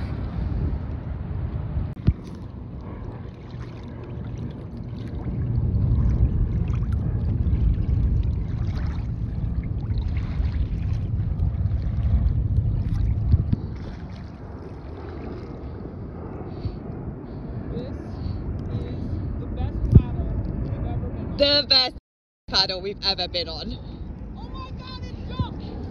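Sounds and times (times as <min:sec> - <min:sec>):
wind rumbling on microphone: 0:00.0 - 0:25.9
water lapping around kayak: 0:01.8 - 0:17.8.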